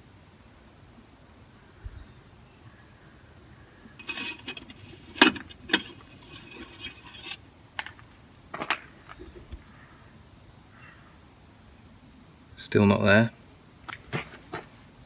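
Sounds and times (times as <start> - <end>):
plastic and metal clattering: 4.0 - 7.4.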